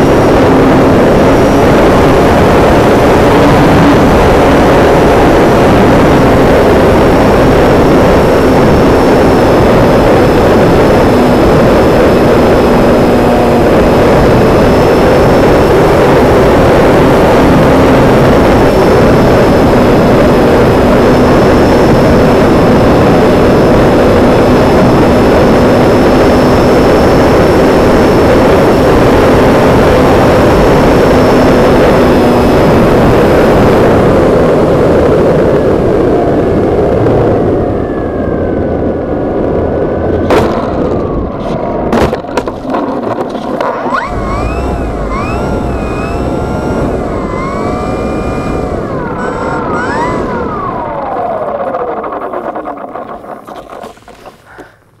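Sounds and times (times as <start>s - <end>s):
propeller motor drone: 0.0s - 39.2s, 43.6s - 54.8s
wavering pitched tones: 43.9s - 52.5s
wind rush: 44.0s - 55.0s.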